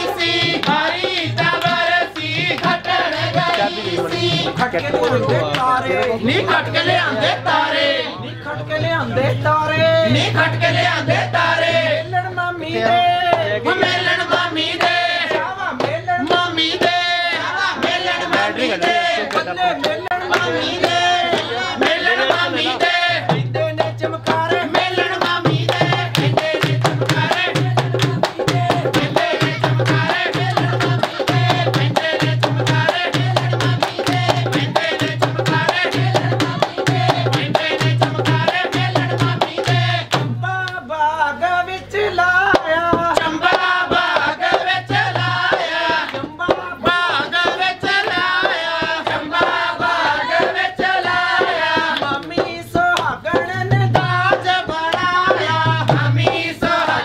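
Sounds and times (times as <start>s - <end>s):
voices singing: 0.0s - 57.0s
deep drum beat: 20.9s - 40.6s, 42.6s - 57.0s.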